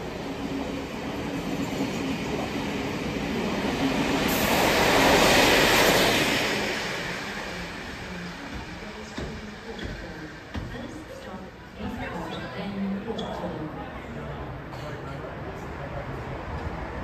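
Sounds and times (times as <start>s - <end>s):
train passing: 0.0s - 12.2s.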